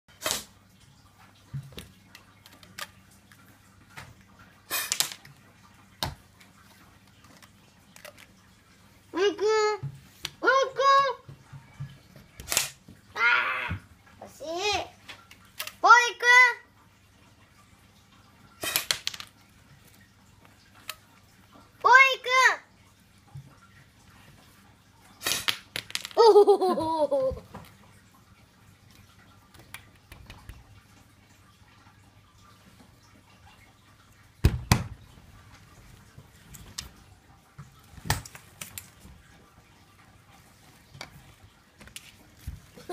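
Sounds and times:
child giggling: 26.2 - 27.4
faint clicks and taps: 28.9 - 31.0, 40.6 - 42.9.

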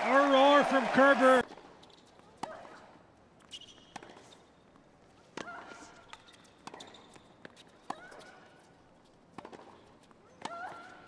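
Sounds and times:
racket hitting tennis ball: 9.3 - 11.0.

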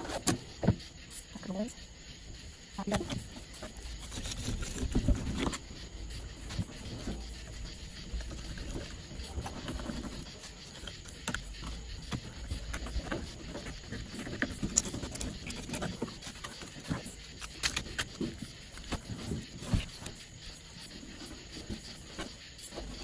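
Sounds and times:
knife cutting and scraping fish: 13.8 - 19.1.

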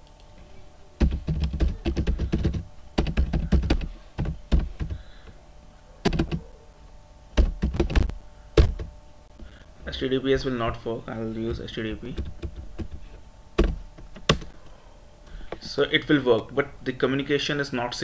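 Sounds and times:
typing on a computer keyboard: 1.0 - 5.0, 6.1 - 6.4.

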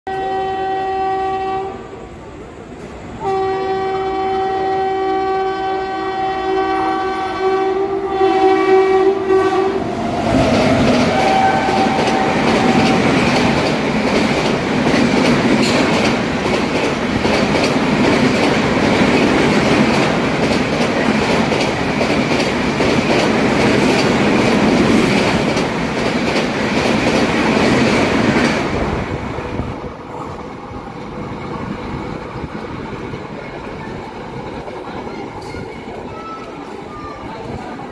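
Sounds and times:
train horn blasts: 0.1 - 1.9, 3.2 - 9.9, 10.6 - 13.4
train wheels on rail: 0.1 - 37.9.

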